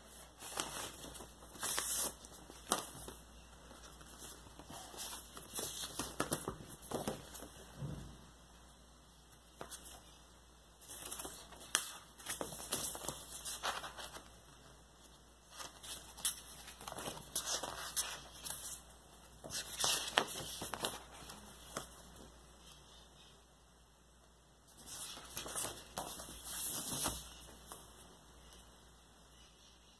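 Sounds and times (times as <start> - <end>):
paper rustling and crinkling: 0.1 - 7.6, 10.8 - 14.4, 15.4 - 22.3, 24.8 - 27.9.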